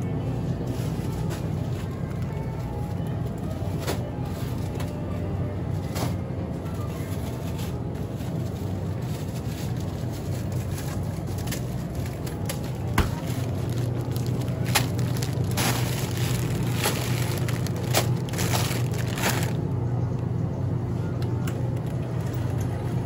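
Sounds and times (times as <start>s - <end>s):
shopping cart rolling: 0.4s - 19.6s, 21.7s - 23.0s
plastic bags rustling: 5.8s - 19.7s.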